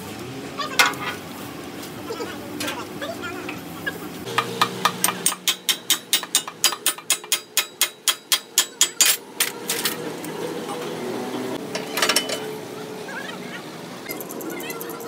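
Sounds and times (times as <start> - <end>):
hammer striking steel: 4.3 - 9.2
metallic clatter: 11.7 - 12.5.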